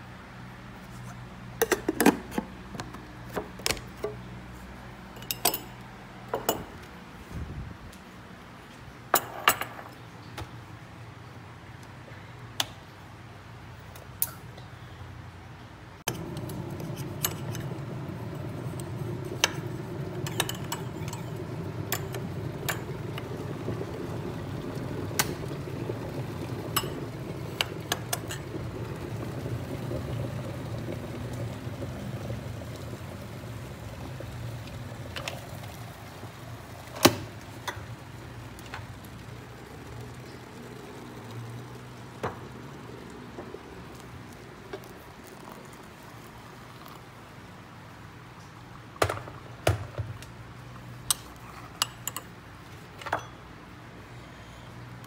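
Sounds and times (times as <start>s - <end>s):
electric kettle heating water: 16.1s - 54.2s.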